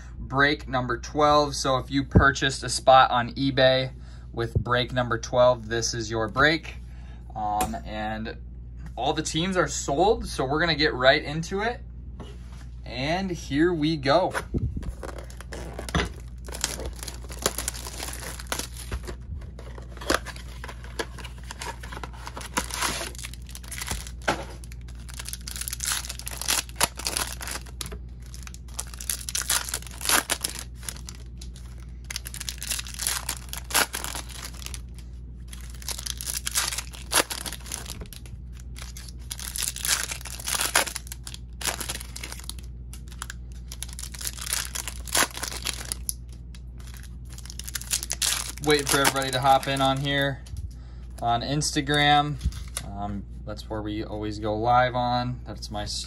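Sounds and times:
low hum: 0:00.0 - 0:56.0
card pack wrappers tearing: 0:14.8 - 0:50.3.

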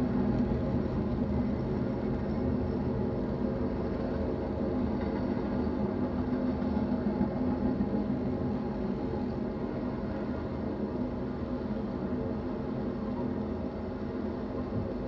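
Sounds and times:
freight train rolling past: 0:00.0 - 0:15.0.

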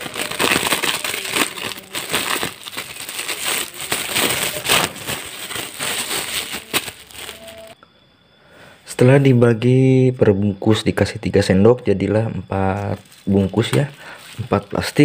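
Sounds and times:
plastic bags crinkling: 0:00.0 - 0:07.8, 0:12.7 - 0:15.0.

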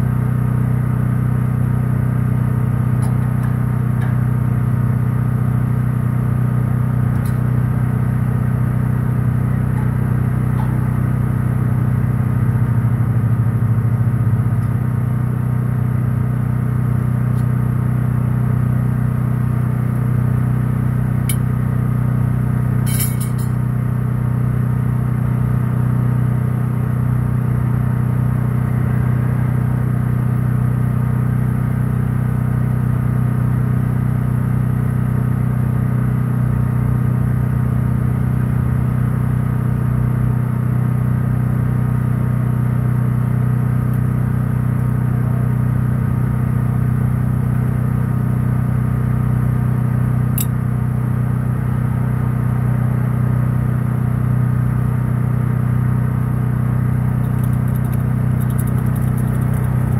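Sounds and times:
engine running steadily: 0:00.0 - 0:59.9
sharp clicks: 0:57.2 - 0:59.9.

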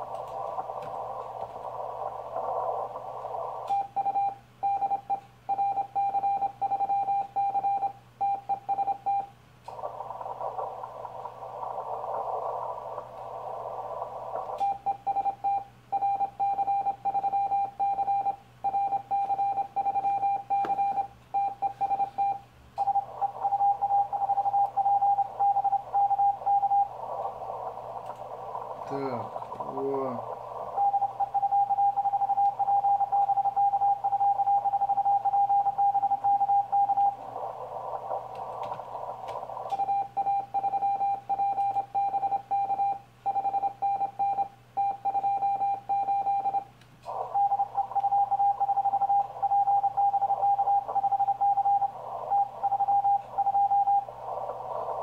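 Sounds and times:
radio receiver hiss: 0:00.0 - 0:06.6, 0:08.1 - 0:55.0
morse code tone: 0:14.6 - 0:27.0, 0:39.7 - 0:54.2.

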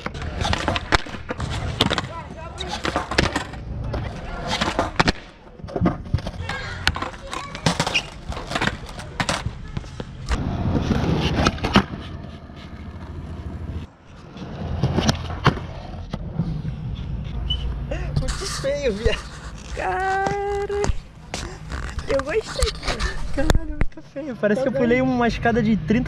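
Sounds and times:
skateboard slapping down: 0:00.0 - 0:12.0
skateboard wheels rolling: 0:00.0 - 0:23.5.

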